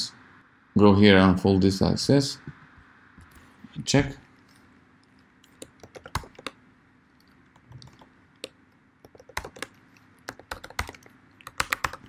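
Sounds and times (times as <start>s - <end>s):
keyboard key clicks: 5.5s - 6.6s.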